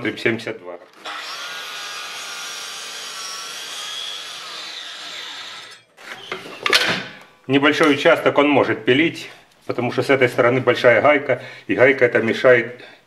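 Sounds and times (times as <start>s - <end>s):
miter saw cutting wood: 0.8s - 5.9s.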